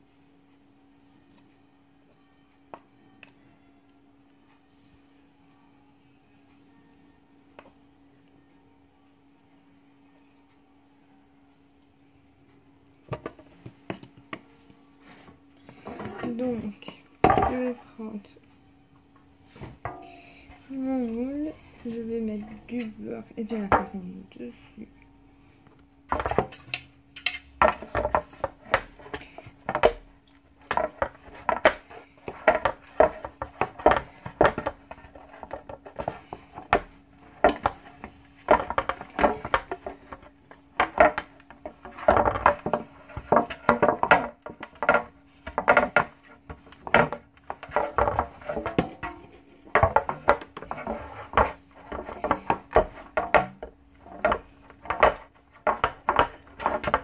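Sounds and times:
faint steady hum: 0:00.0 - 0:57.0.

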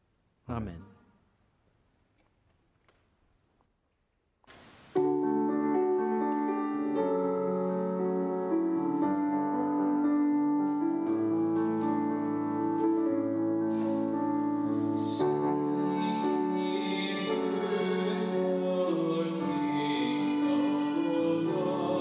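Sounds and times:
brief hiss: 0:04.5 - 0:05.0
keyboard playing slow chords: 0:05.0 - 0:22.0.

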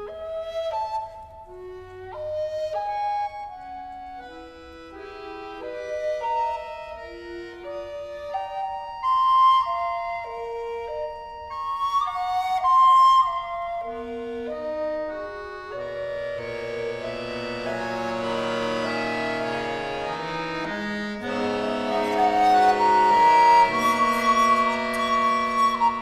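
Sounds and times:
accordion sustained chords: 0:00.0 - 0:26.0
high recorder note: 0:21.2 - 0:26.0.

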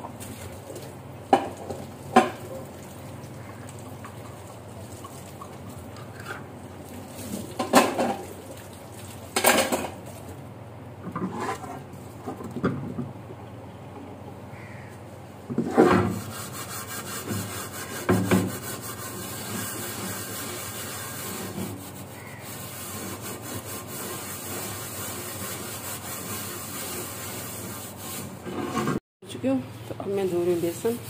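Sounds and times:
scourer scrubbing utensils: 0:15.7 - 0:29.0.

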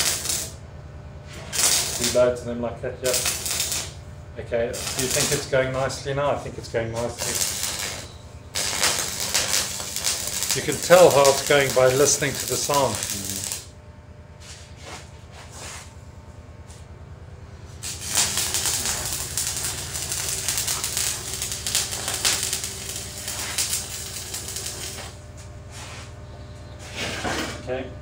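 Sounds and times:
welding arc crackling: 0:00.0 - 0:00.6, 0:01.3 - 0:06.0, 0:07.0 - 0:13.7, 0:17.6 - 0:25.6
low steady hum: 0:00.1 - 0:28.0.

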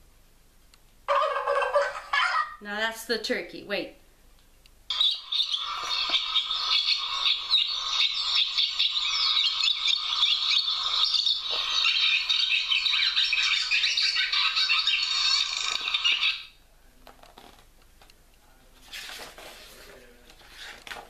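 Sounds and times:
swallows twittering: 0:04.9 - 0:16.5.

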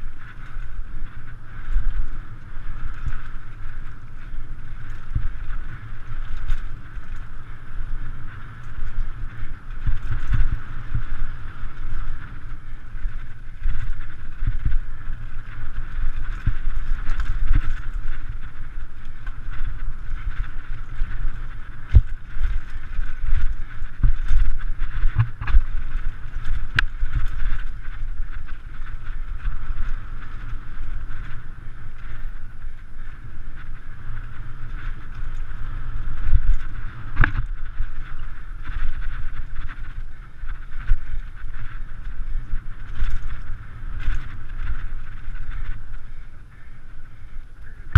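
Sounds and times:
bike rattling: 0:00.0 - 0:47.9
wind rumble on microphone: 0:00.0 - 0:47.9
bike knocking on bumps: 0:08.0 - 0:31.5.

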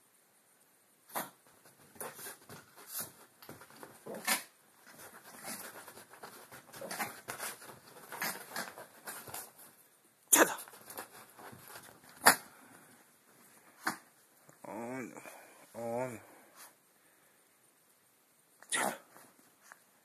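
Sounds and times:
dog paws scratching on mattress: 0:01.1 - 0:09.8, 0:10.6 - 0:12.4.

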